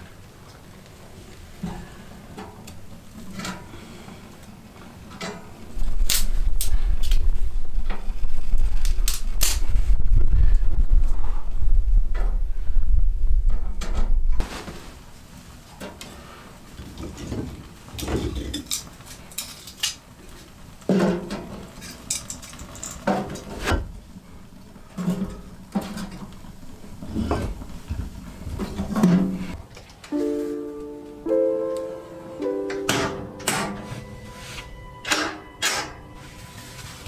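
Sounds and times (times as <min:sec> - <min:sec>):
loud low rumble: 0:06.4 - 0:14.4.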